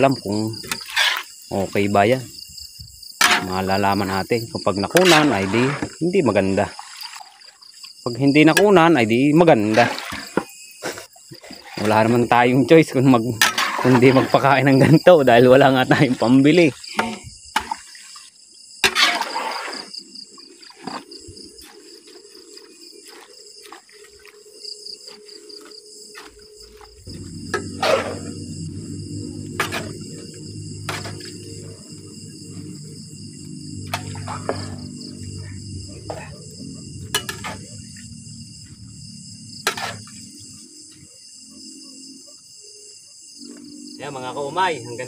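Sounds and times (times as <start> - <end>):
crickets chirping: 0.0 - 45.0
spatula scraping metal wok: 0.7 - 1.4, 3.2 - 3.6, 5.0 - 5.9, 13.4 - 14.4, 18.8 - 20.0, 27.4 - 31.8, 37.0 - 37.8, 39.6 - 40.2
low rumble: 27.1 - 39.4.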